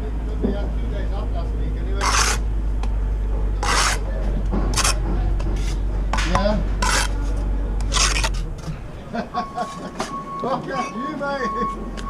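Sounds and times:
trowel scraping mortar on brick: 2.0 - 2.4, 3.6 - 4.1, 4.7 - 8.6.

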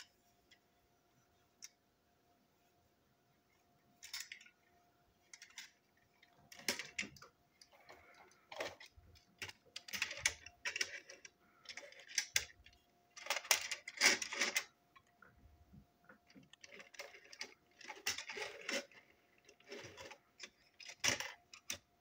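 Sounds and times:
toy parts clicking and scraping: 4.0 - 15.2, 16.1 - 22.0.

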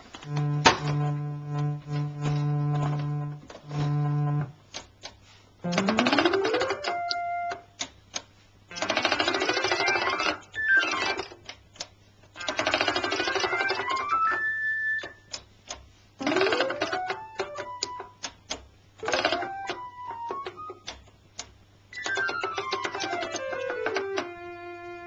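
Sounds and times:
steady low hum: 0.0 - 8.8
electronic accordion glissandos: 0.2 - 4.6, 5.6 - 7.6, 22.9 - 25.0
sharp clicks: 4.7 - 15.8, 16.6 - 24.3.

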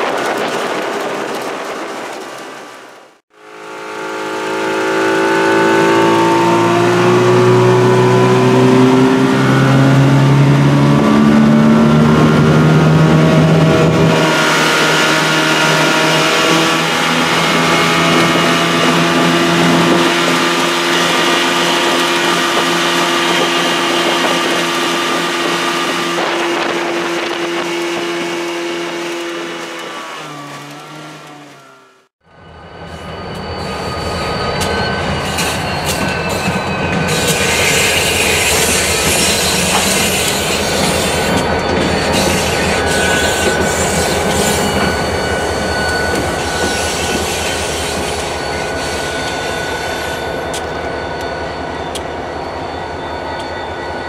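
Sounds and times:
diesel locomotives rumbling: 0.0 - 54.0
train wheels squealing on rails: 14.2 - 54.0.

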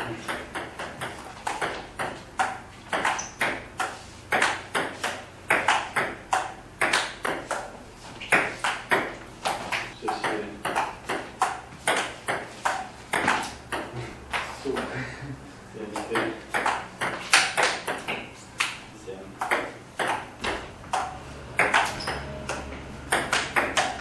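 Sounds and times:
table tennis ball ticking: 0.2 - 7.7, 10.1 - 13.9, 19.4 - 20.3, 20.9 - 24.0.

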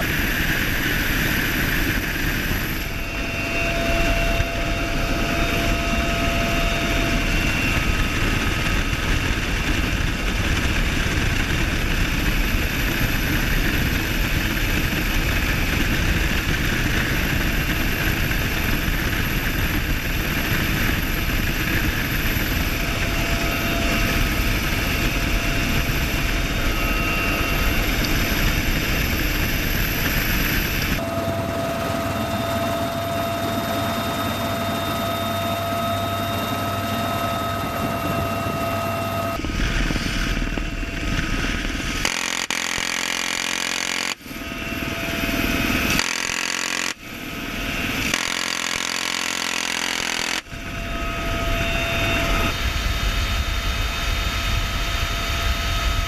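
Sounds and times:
faint whining tones: 0.0 - 56.0
helicopter engines and rotors: 0.0 - 56.0.

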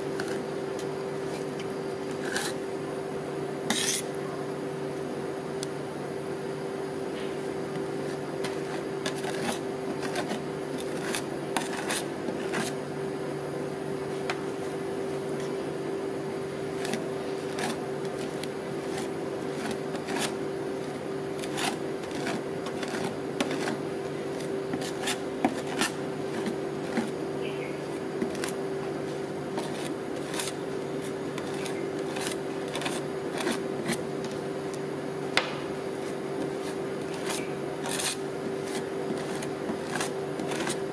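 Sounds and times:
steady hum: 0.0 - 40.9
metal spatulas scraping on metal plate: 3.7 - 4.1.

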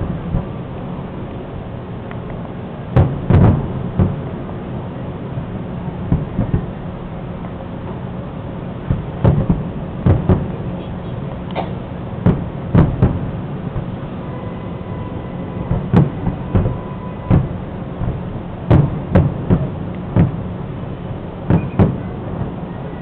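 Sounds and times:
steady low hum: 0.0 - 23.0
firework shells bursting: 11.4 - 14.0, 21.4 - 22.6.

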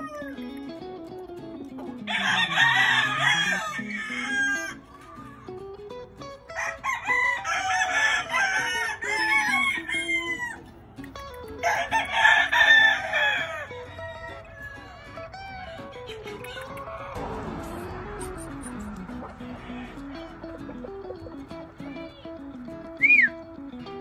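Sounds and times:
rooster crowing: 0.0 - 0.4, 2.1 - 5.4, 6.5 - 10.7, 11.6 - 15.9
background guitar music: 0.0 - 24.0.

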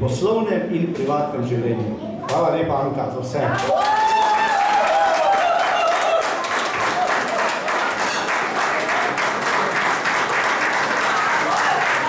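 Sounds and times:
crowd applauding: 3.6 - 12.0.

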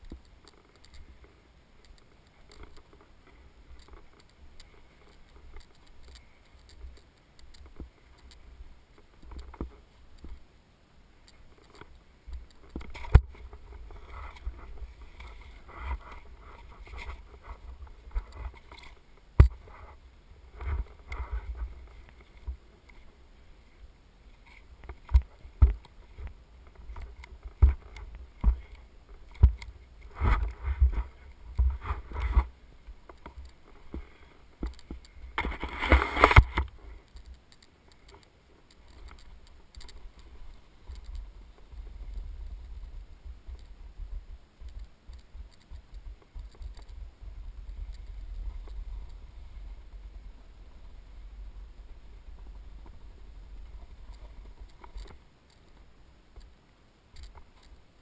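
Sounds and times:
snowboard gear knocks and clicks: 24.4 - 37.4
snowboard sliding over snow: 35.3 - 37.0.

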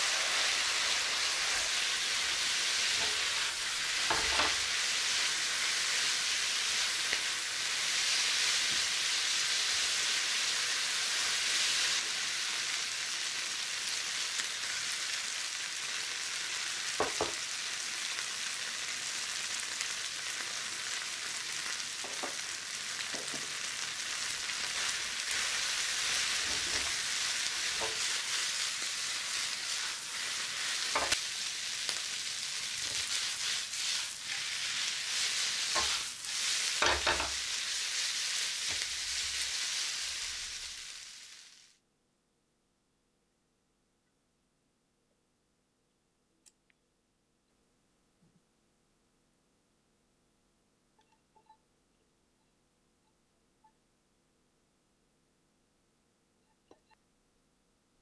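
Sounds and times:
noodles sizzling in a frying pan: 0.0 - 41.8.

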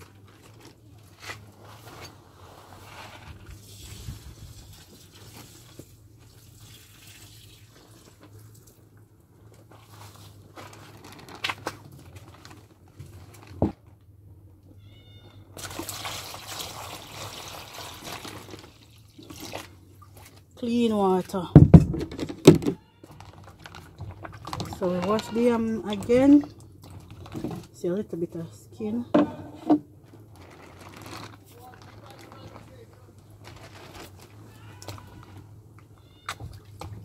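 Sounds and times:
water pouring into plastic bowl: 3.6 - 8.8, 15.6 - 20.3, 30.3 - 32.7
faint animal call: 14.8 - 15.4, 34.4 - 36.5.

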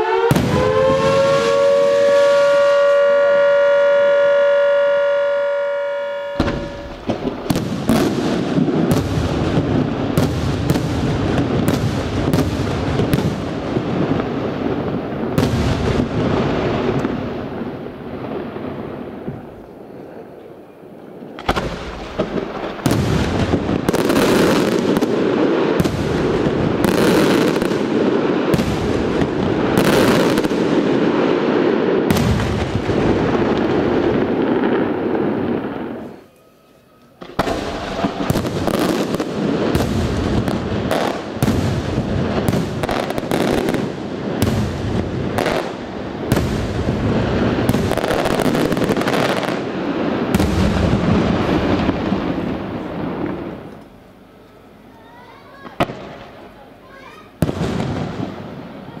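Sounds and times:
fireworks shells bursting: 6.2 - 11.1.

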